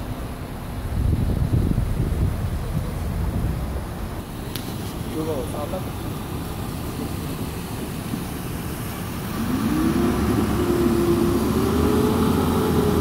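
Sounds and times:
steady low rumble: 0.0 - 9.4
vehicle engine rising in pitch: 9.3 - 13.0.

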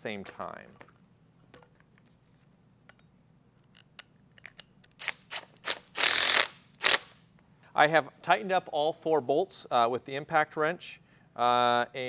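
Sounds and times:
impact wrench bursts: 5.0 - 7.2.

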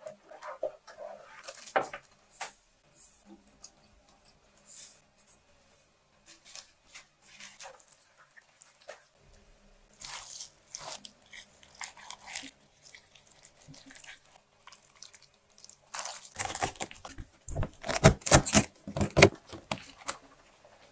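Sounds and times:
wet squelching of mixed cabbage: 6.2 - 18.6
cabbage packed into plastic container: 15.9 - 20.2.

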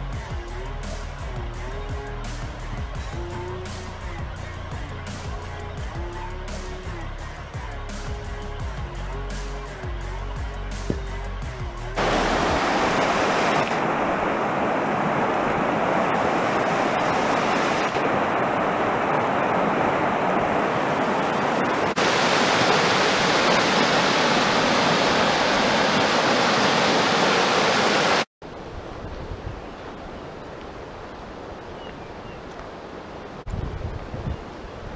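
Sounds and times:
river rushing over stones: 12.0 - 28.3.

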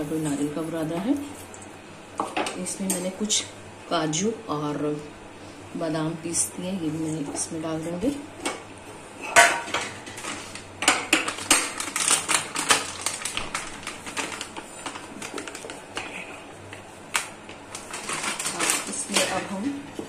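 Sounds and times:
utensils clinking on steel bowl: 9.2 - 12.8.

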